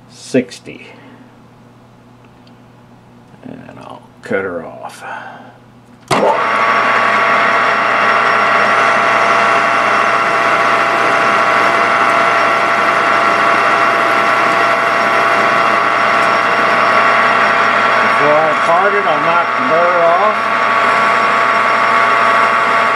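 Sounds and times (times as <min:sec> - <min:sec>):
metal lathe whining: 0:06.1 - 0:22.9.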